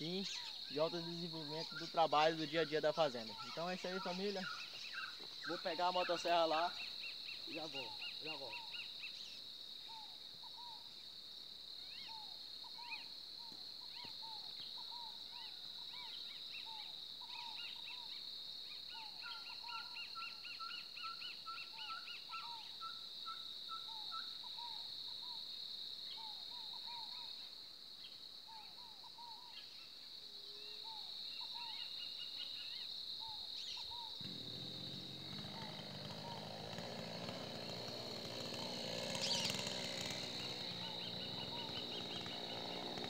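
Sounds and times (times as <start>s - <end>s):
high-pitched insect drone: 0.0s - 10.0s, 31.5s - 43.0s
birds calling: 0.0s - 11.1s, 30.6s - 43.0s.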